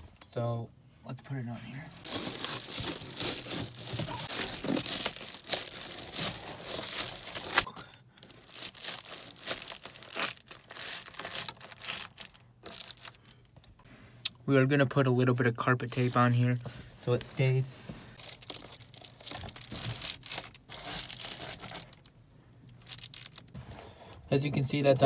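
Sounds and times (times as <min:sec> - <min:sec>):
foil insulation crinkling: 0:02.0 - 0:13.4, 0:18.2 - 0:22.1, 0:22.7 - 0:23.6.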